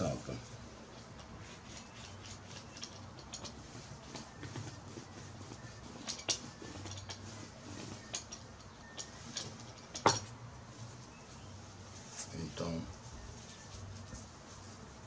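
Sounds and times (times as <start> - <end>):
paint roller clicking on cloth: 0.8 - 11.1
roller tapping on board: 2.4 - 10.3.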